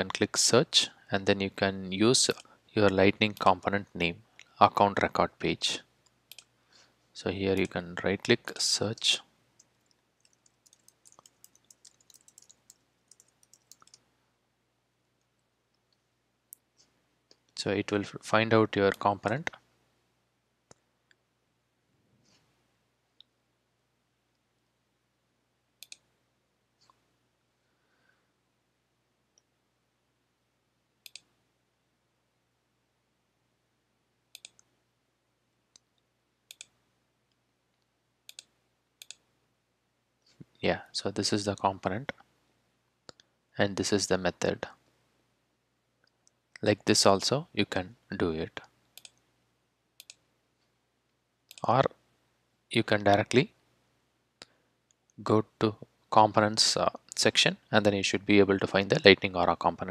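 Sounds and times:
faint keyboard typing: 2.2 - 3.7, 6.0 - 6.6, 8.5 - 14.1, 25.8 - 26.1, 34.3 - 34.8, 35.7 - 39.3, 48.5 - 49.3, 50.0 - 50.7, 51.4 - 51.9
computer mouse clicks: 6.0 - 6.5, 9.6 - 14.0, 25.8 - 26.1, 31.0 - 31.3, 34.3 - 34.7, 35.8 - 36.8, 37.8 - 39.2, 48.6 - 49.2, 50.0 - 50.2, 51.5 - 51.7.

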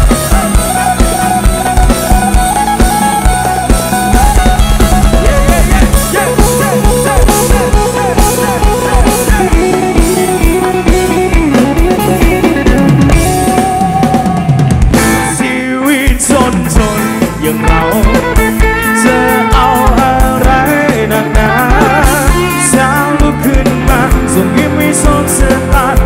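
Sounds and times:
live rock band: 0.0 - 26.0.

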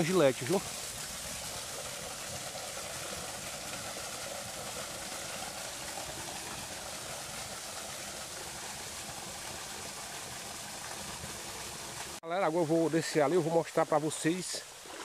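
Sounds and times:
water splashing into rock pool: 14.7 - 15.0.

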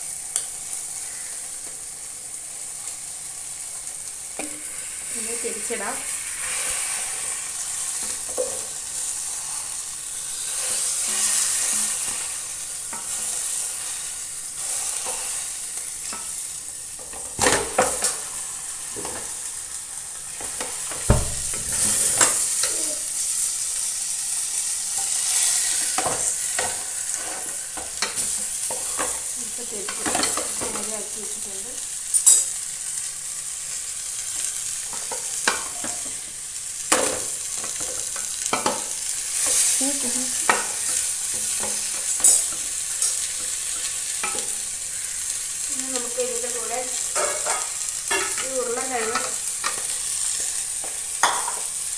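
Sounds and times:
chicken sizzling in a pan: 0.0 - 51.9
utensils scraping a metal pan: 46.0 - 51.7.

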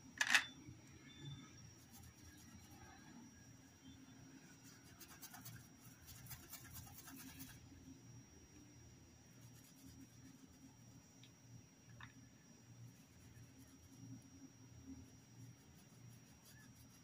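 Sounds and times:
paintbrush scratching on cloth: 4.6 - 7.6, 9.4 - 10.7, 12.9 - 14.4, 15.1 - 17.0.

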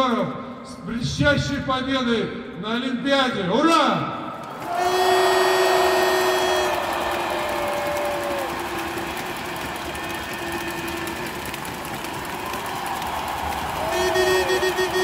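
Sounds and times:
crowd cheering: 4.4 - 15.0.

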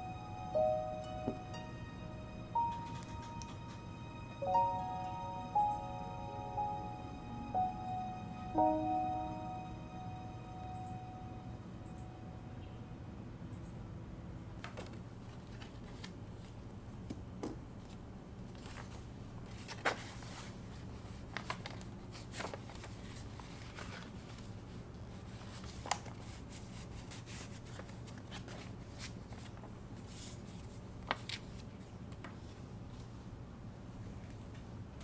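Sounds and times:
steady low hum: 0.0 - 13.8
paper envelope rustling: 14.8 - 16.6, 17.9 - 24.6, 25.2 - 32.5.

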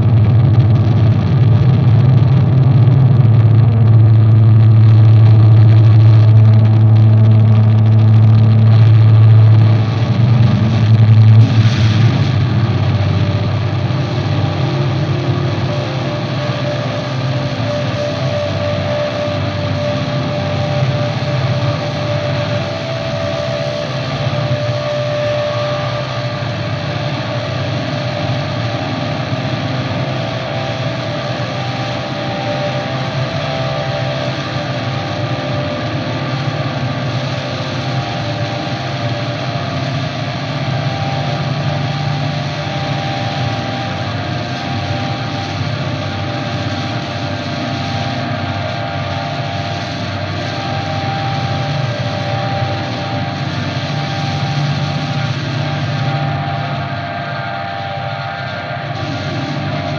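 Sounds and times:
electric guitar drone: 0.0 - 59.9
heavy low hum: 0.0 - 59.9.

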